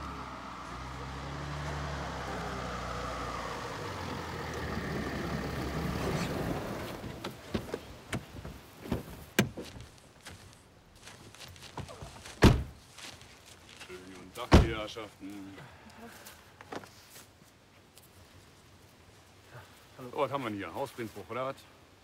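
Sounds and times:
car pulling up: 0.0 - 9.9
car door shutting: 5.6 - 9.8, 12.4 - 12.8, 14.5 - 14.8.

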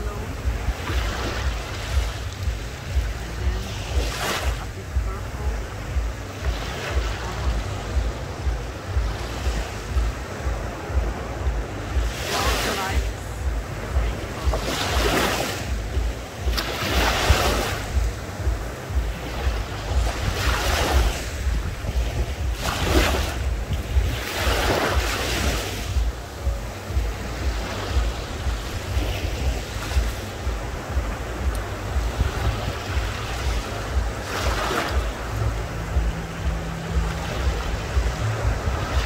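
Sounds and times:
sea waves breaking on shore: 0.0 - 39.0
wind buffeting microphone: 0.0 - 39.0.

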